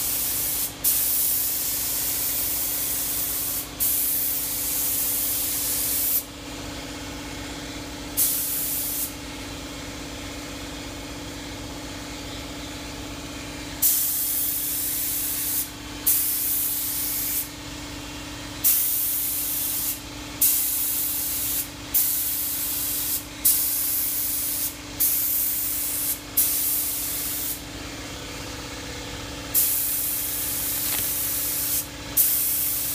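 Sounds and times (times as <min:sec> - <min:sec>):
spray gun hissing: 0:00.0 - 0:06.2, 0:08.2 - 0:09.1, 0:13.8 - 0:17.5, 0:18.6 - 0:27.6, 0:29.6 - 0:32.9.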